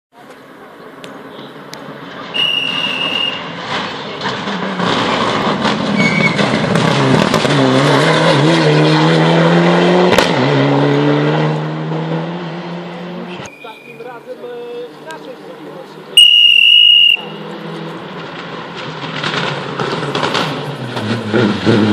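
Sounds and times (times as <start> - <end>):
rally car engine passing at speed: 1.8 - 13.5, 17.2 - 21.9.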